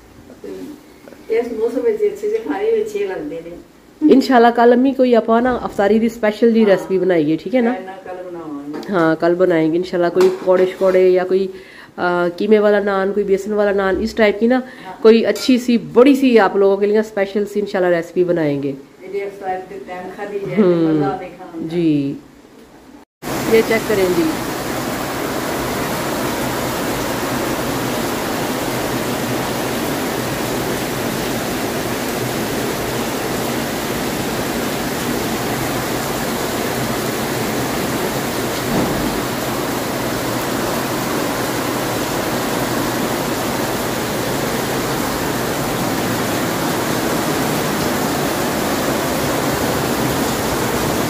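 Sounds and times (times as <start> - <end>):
heavy rain: 23.2 - 51.0
water streaming off awning: 23.2 - 51.0.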